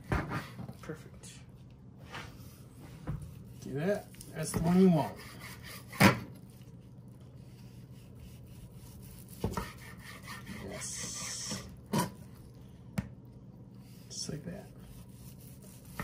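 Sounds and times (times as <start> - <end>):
knife sawing through meat: 4.7 - 6.6, 7.4 - 11.5, 13.8 - 16.0.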